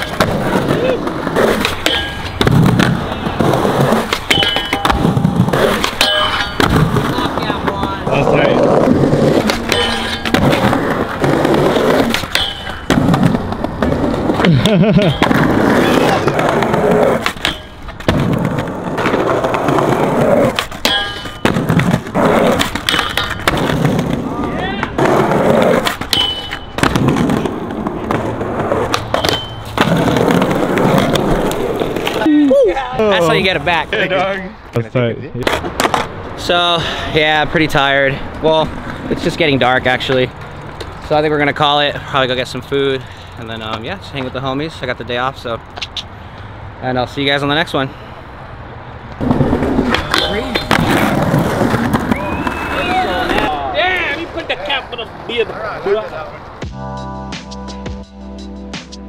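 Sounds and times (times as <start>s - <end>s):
skateboards clacking on metal bar: 0.0s - 8.0s, 8.6s - 14.3s, 14.9s - 24.2s, 24.8s - 32.3s, 49.2s - 51.9s
skateboards rolling on concrete: 0.0s - 56.7s
short metallic rings: 1.8s - 2.4s, 4.3s - 5.2s, 5.9s - 6.7s, 9.7s - 10.4s, 12.3s - 12.9s, 20.8s - 21.5s, 26.1s - 26.8s, 29.1s - 29.8s.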